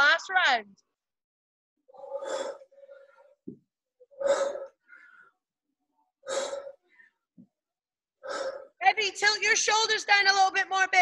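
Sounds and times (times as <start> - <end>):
sharp breathy exhalations: 1.9 - 3.4, 4.1 - 5.5, 6.2 - 7.2, 8.2 - 8.8.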